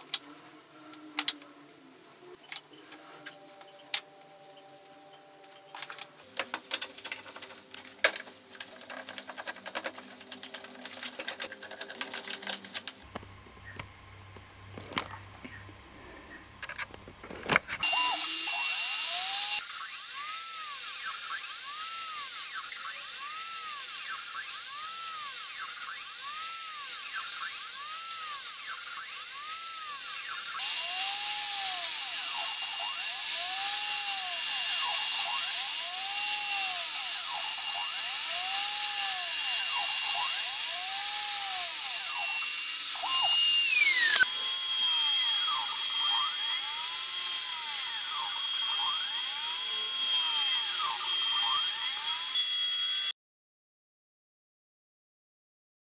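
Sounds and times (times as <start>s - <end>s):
router spindle whining: 17.2s - 53.1s.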